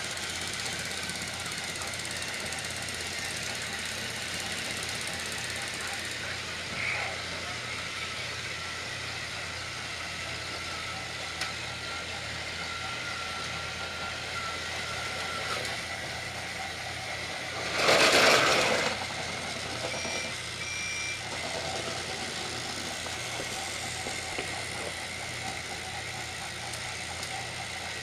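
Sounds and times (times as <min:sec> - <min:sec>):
toy train motors whirring: 0:00.0 - 0:28.0
short high beeps: 0:19.9 - 0:21.2.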